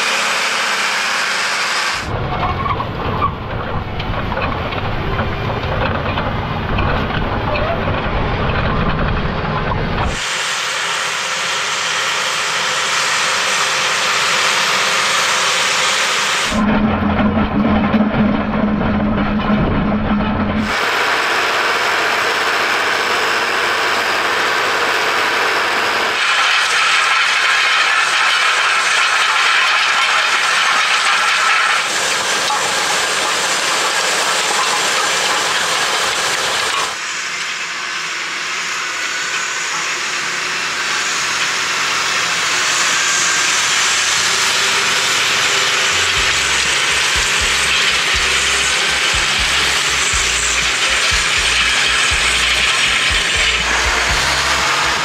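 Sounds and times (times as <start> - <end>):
hissing clatter of disc cultivator: 3.2 - 55.0
low throb: 45.9 - 55.0.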